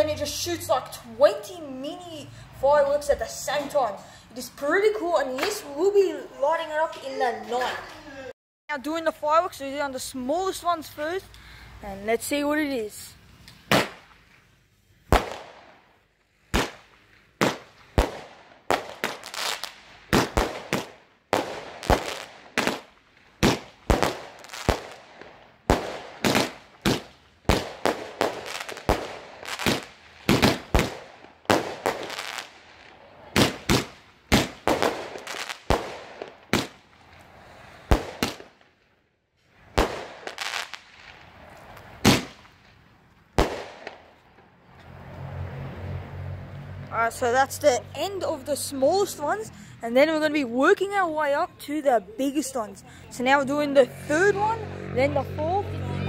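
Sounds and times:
fireworks bangs: 13.6s - 14.2s, 15.1s - 38.8s, 39.6s - 44.3s.

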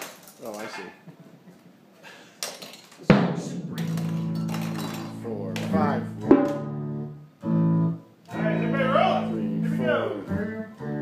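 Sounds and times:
sharp knock: 3.1s - 4.3s, 6.2s - 6.7s.

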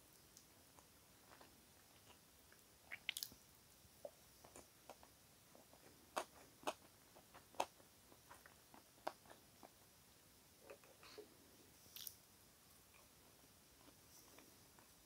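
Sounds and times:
wet chewing and mouth smacks: 0.3s - 3.4s.

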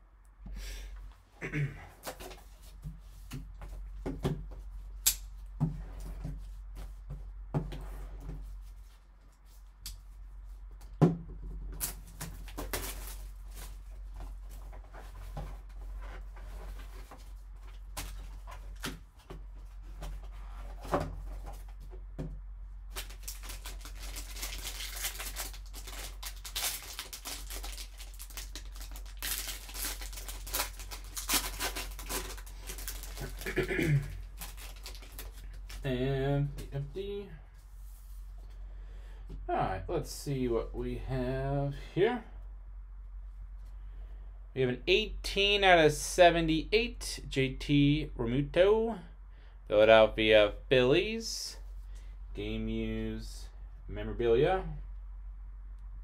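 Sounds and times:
low steady hum: 0.0s - 56.0s
foil wrapper crinkling and tearing: 22.9s - 35.9s.

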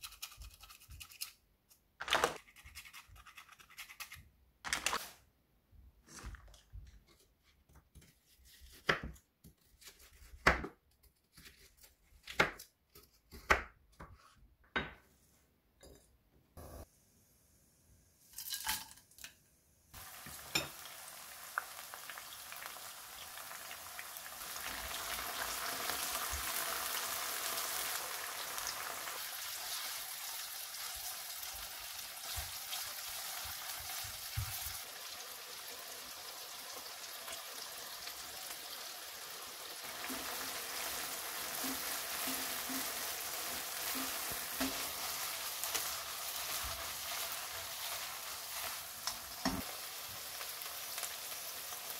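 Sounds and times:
food sizzling in a wok: 20.0s - 51.9s.

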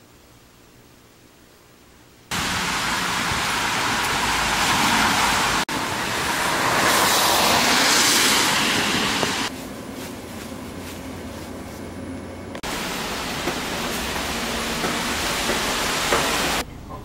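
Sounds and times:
rain rushing: 2.3s - 9.5s, 12.6s - 16.6s.

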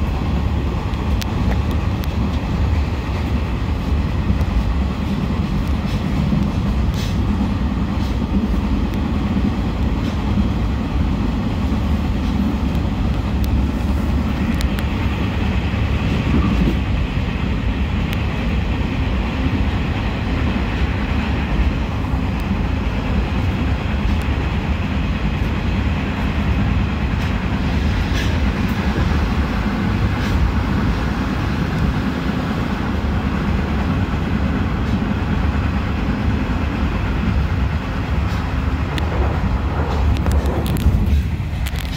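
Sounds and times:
train rumbling along track: 0.0s - 41.9s
faint clicks: 14.4s - 14.9s.

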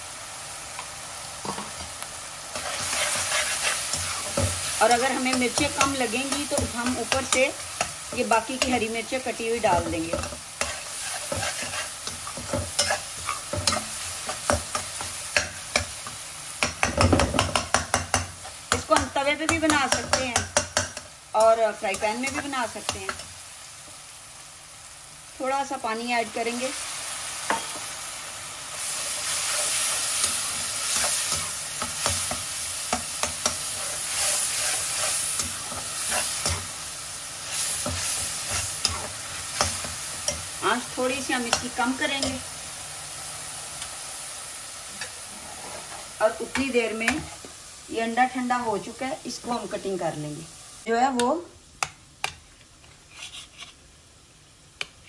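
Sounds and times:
food sizzling in oil: 0.0s - 55.0s
metal spoon scraping a pan: 2.5s - 21.2s, 28.7s - 36.8s, 37.4s - 42.5s, 45.0s - 47.4s, 52.9s - 53.8s.

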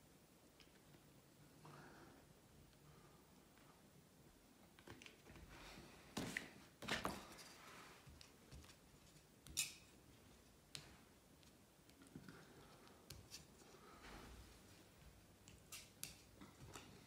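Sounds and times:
stick scraping and tapping: 8.1s - 13.6s, 15.0s - 17.0s.

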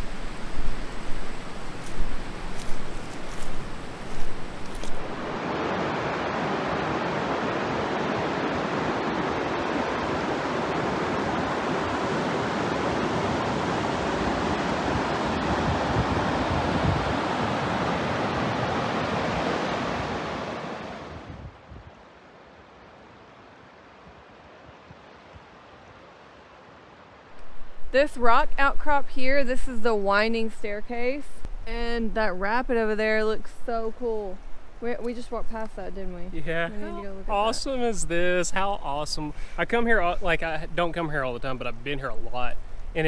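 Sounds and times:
river rapid rushing over rocks: 0.0s - 21.3s.

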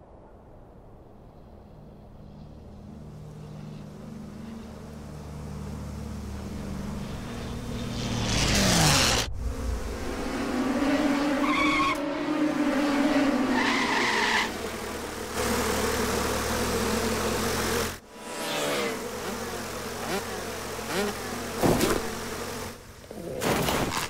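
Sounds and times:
cartoon wasps buzzing: 12.6s - 22.8s.

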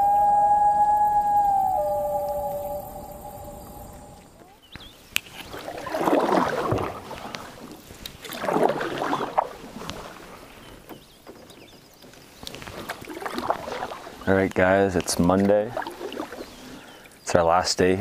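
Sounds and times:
paddle splashing in water: 4.2s - 17.2s.

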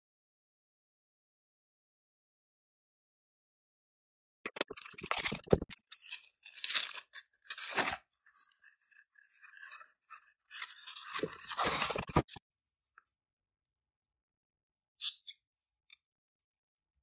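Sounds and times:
plastic wrap crinkling: 4.8s - 8.5s.

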